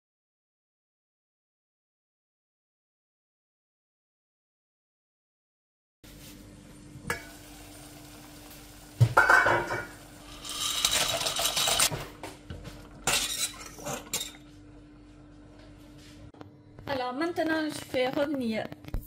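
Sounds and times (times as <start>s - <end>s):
frying pan and utensils clanking: 7.1s - 7.7s, 9.0s - 12.0s, 13.0s - 14.5s.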